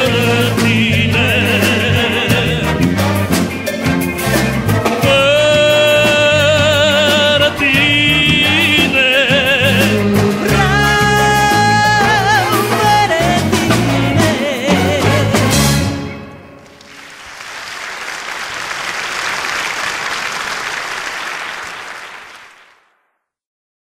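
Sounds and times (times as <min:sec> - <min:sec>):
audience applause: 0:16.6 - 0:23.1.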